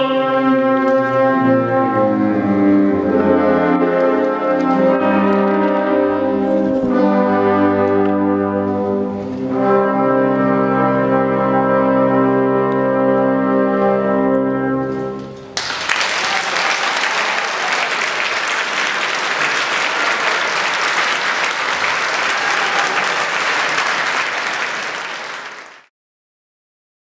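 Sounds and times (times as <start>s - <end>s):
audience applause: 15.6s - 25.9s.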